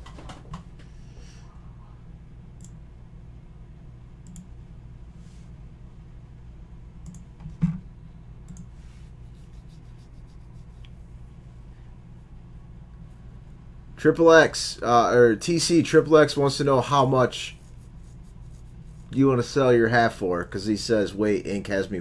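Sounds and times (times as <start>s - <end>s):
steady low hum: 0.0s - 22.0s
computer mouse clicks: 4.2s - 4.5s, 7.0s - 7.3s.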